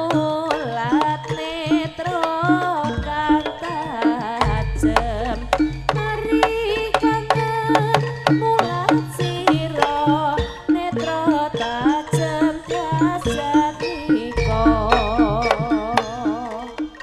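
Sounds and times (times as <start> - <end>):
hand drum strokes: 0.0 - 17.0
woman singing: 0.0 - 17.0.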